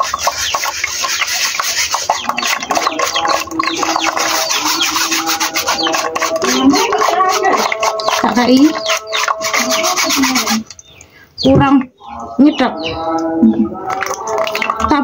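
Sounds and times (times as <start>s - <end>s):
whisk scraping metal sieve: 0.0s - 10.8s.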